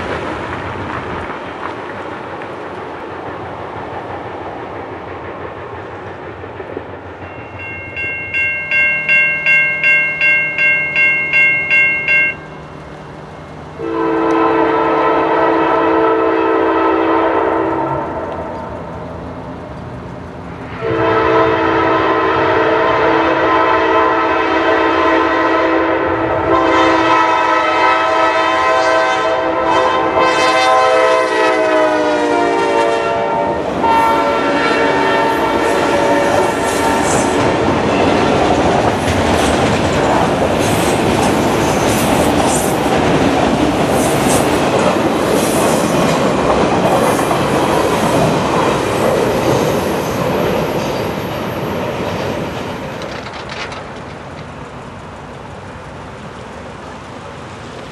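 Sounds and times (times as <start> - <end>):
train wheels rumbling and clacking: 0.0 - 57.9
locomotive air horn: 13.8 - 18.4, 20.8 - 37.6.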